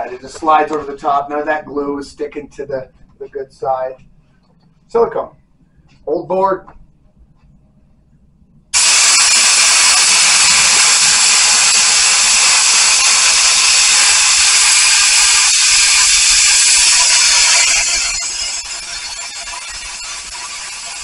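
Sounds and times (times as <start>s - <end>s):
spray gun hissing: 8.8s - 21.0s.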